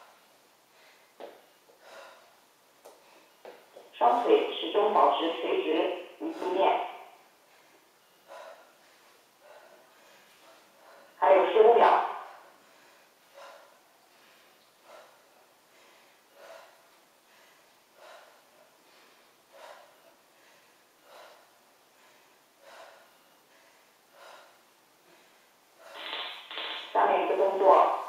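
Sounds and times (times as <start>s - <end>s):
woman breathing out: 12.5s - 26.5s.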